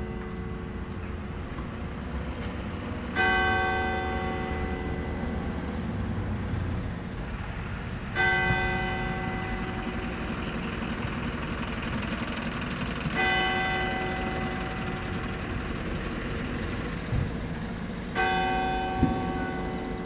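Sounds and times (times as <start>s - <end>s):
church bell tolling: 0.0s - 1.5s, 3.1s - 6.0s, 8.1s - 11.2s, 13.1s - 16.0s, 18.1s - 20.0s.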